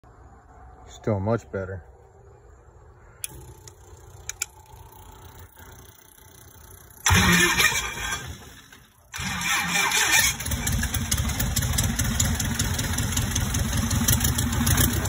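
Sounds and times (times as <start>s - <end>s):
aircraft engine starting: 6.9s - 15.0s.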